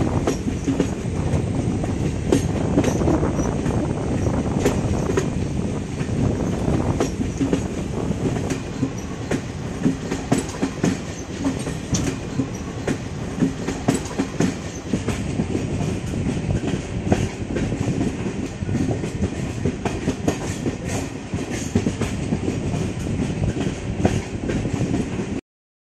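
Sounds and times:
train coaches rumbling: 0.0s - 25.4s.

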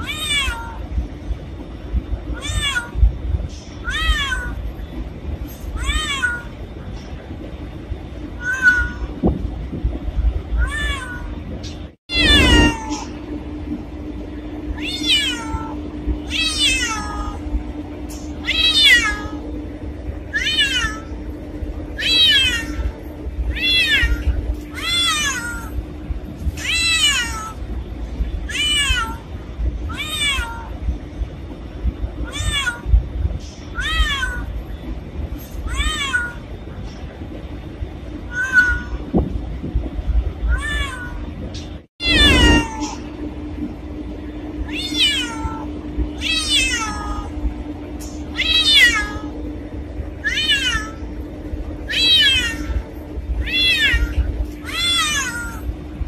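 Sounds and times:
cat meowing: 0.0s - 0.8s, 8.4s - 9.1s, 10.6s - 11.3s, 12.1s - 13.1s, 14.8s - 17.4s, 29.9s - 30.7s, 32.2s - 32.9s, 33.7s - 34.5s, 35.7s - 36.4s, 38.3s - 39.0s, 40.5s - 41.2s, 42.0s - 43.0s, 44.7s - 47.3s, 50.2s - 51.0s, 51.9s - 52.8s, 53.4s - 55.7s.

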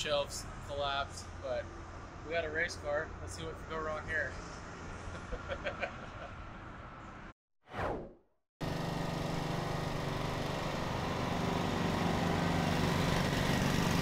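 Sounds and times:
engine running steadily: 8.6s - 14.0s.

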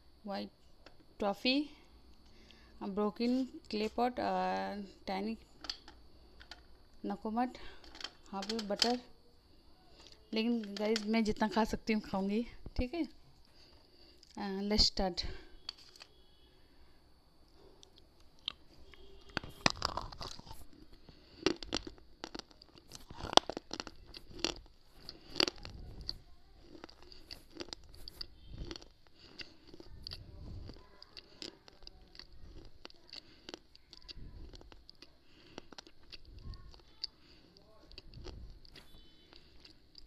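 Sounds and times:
soft chewing: 13.2s - 14.4s, 17.5s - 40.0s
brittle crunching: 15.6s - 16.2s, 18.4s - 40.0s.

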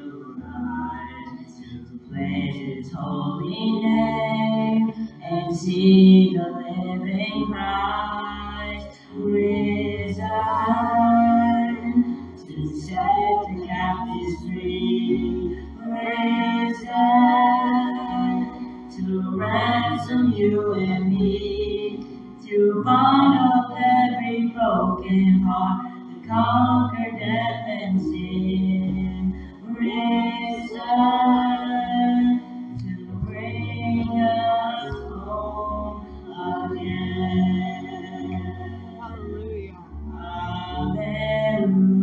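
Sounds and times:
low held bass notes: 0.0s - 42.0s
woman and boy singing: 0.0s - 42.0s.

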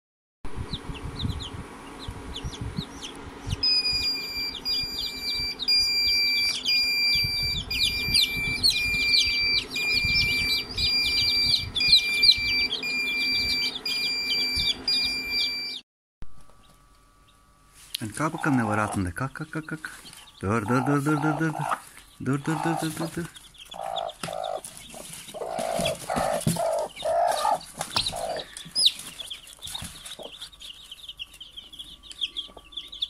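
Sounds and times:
chicks peeping: 0.6s - 15.8s, 16.5s - 33.0s
high electronic tones: 3.6s - 15.8s.

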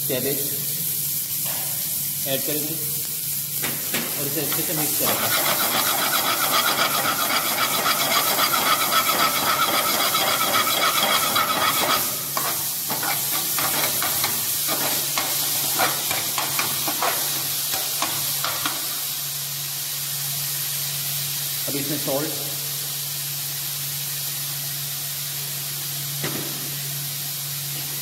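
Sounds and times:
cabbage sauteing with a hiss: 0.0s - 28.0s
ladle scraping a pan: 5.0s - 17.3s.

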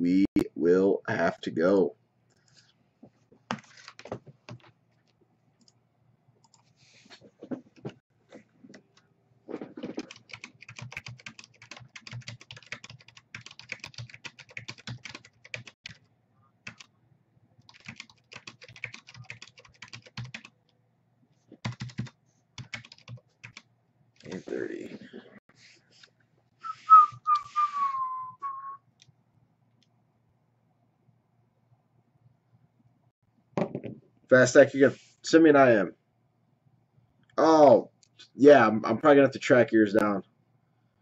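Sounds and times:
typing on computer keyboard: 9.8s - 16.0s, 16.7s - 16.9s, 17.7s - 20.6s, 21.6s - 23.6s.

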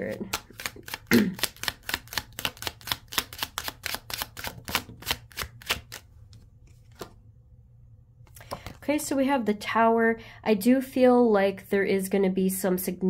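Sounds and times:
cards being shuffled: 0.0s - 7.2s, 8.3s - 8.8s.

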